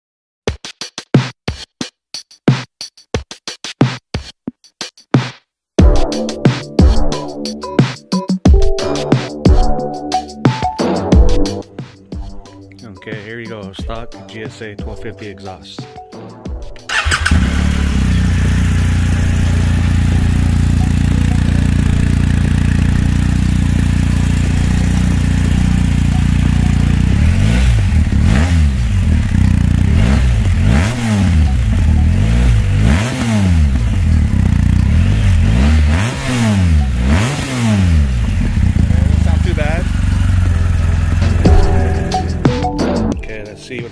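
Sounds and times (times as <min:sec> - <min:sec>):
motorcycle engine idling: 0:16.9 - 0:42.4
motorcycle engine revving: 0:16.9 - 0:42.5
motorcycle engine starting: 0:16.9 - 0:42.6.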